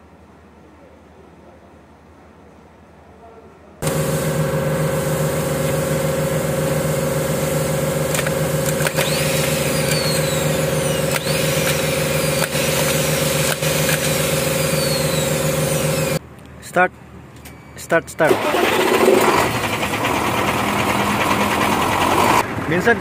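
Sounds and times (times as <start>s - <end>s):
starter motor spinning hum: 3.8s - 16.2s, 18.3s - 22.4s
starter motor clicks: 7.7s - 16.2s, 18.2s - 22.4s.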